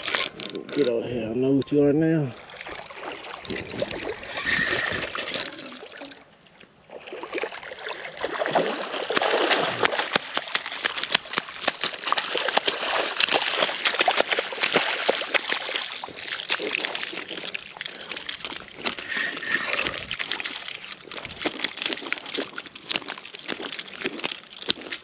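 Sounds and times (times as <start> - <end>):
shark thrashing and splashing: 7.0 - 25.0.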